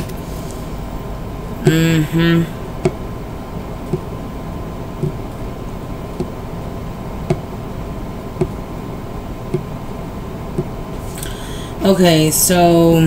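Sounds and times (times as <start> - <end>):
mechanical room hum: 0.0 - 13.0.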